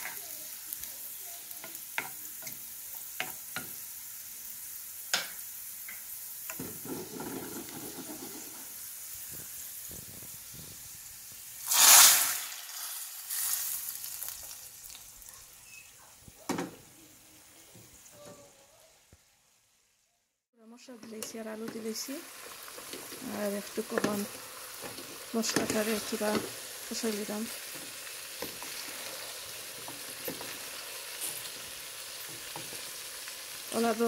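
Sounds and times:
garlic sizzling in hot oil: 0.0 - 18.4, 20.7 - 34.0
loud hiss of hot oil poured: 6.2 - 14.8.

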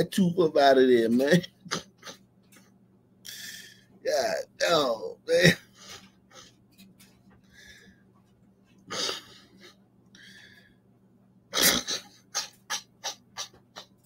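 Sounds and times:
man laughing hard: 11.6 - 14.0.

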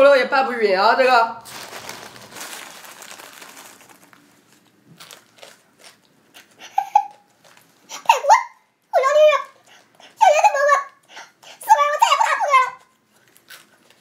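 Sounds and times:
dry noodles crunching: 1.4 - 7.9, 12.8 - 14.0
plastic packet crinkling: 1.4 - 7.9.

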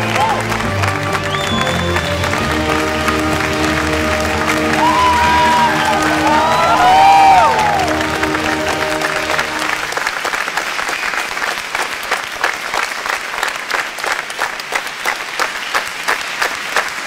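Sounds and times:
music: 0.0 - 10.0
crowd applauding: 0.0 - 17.0.

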